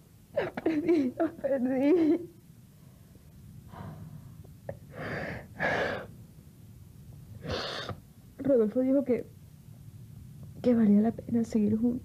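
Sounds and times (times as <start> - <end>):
woman sobbing: 0.3 - 2.4.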